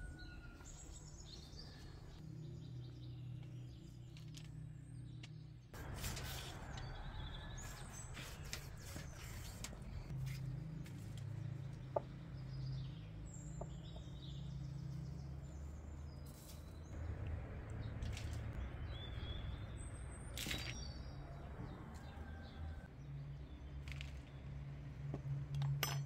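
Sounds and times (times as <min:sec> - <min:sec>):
small birds chirping: 0:00.0 - 0:17.2.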